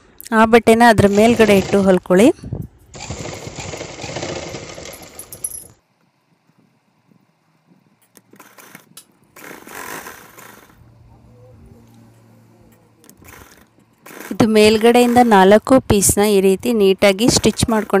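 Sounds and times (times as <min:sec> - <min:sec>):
sewing machine stitching: 0:01.0 - 0:02.2, 0:03.0 - 0:05.4, 0:08.4 - 0:10.8, 0:13.2 - 0:15.6, 0:17.1 - 0:18.0.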